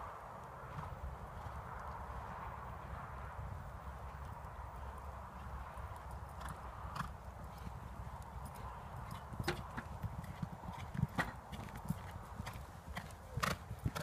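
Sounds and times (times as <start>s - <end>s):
muffled hoofbeats on sand: 0.0s - 14.0s.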